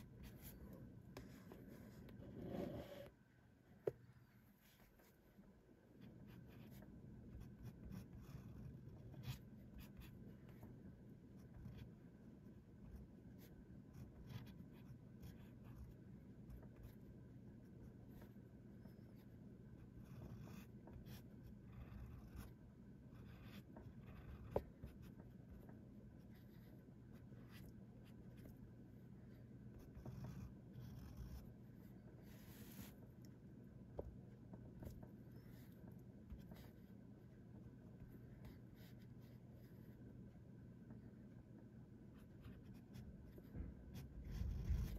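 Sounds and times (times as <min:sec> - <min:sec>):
fountain pen scratching paper: 0:06.0 - 0:33.1, 0:42.2 - 0:44.9.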